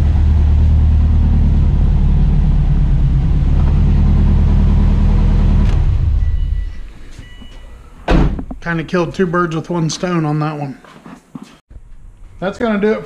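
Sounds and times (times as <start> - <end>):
car engine idling: 0.0 - 6.6.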